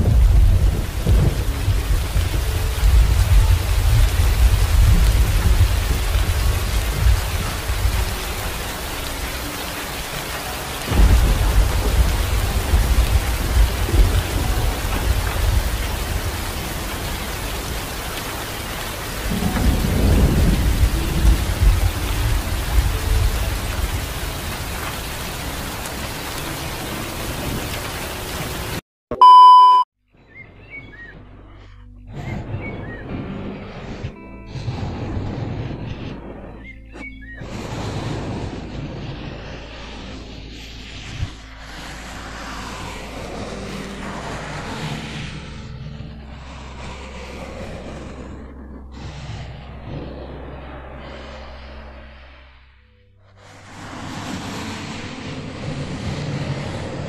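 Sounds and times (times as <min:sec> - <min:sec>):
heavy rain: 0:00.0 - 0:28.8, 0:32.3 - 0:57.0
thunder rumbling: 0:00.0 - 0:28.8, 0:32.1 - 0:51.8
loud steady tv beep: 0:29.1 - 0:29.9.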